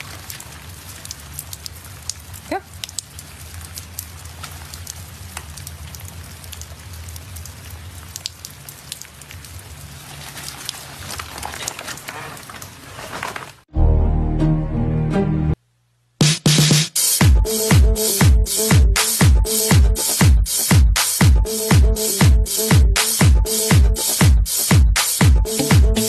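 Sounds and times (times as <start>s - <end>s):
rain falling: 0.0s - 13.7s.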